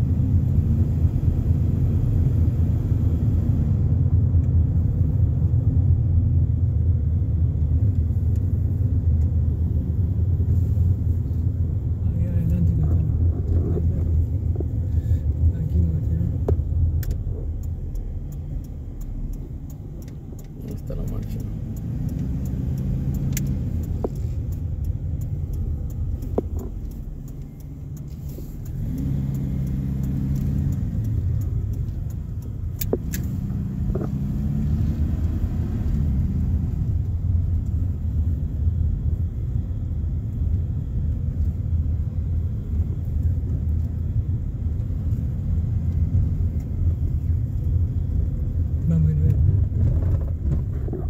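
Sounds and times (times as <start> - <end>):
car engine accelerating: 0.0 - 51.0
road noise inside car: 0.0 - 51.0
sharp clicks: 16.3 - 34.2.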